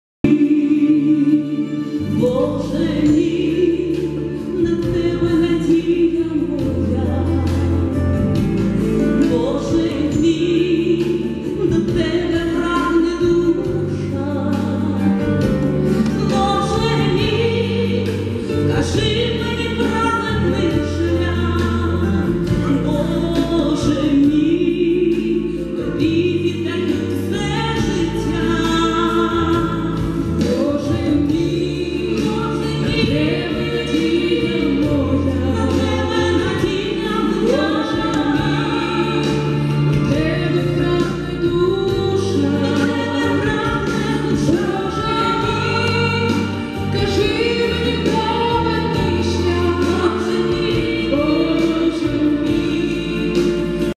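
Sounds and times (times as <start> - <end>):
women singing through pa: 30.4 - 53.9.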